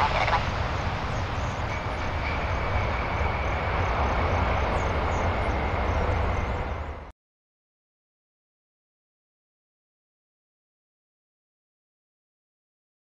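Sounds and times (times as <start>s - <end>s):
high steady jet whine: 0.0s - 7.1s
jet engines roaring: 0.0s - 7.1s.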